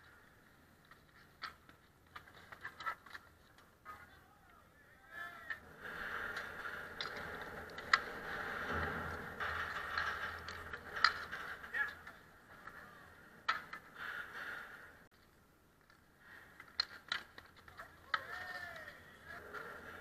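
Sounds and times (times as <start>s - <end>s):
hockey sticks and ball clacking: 0.0s - 4.6s, 5.4s - 20.0s.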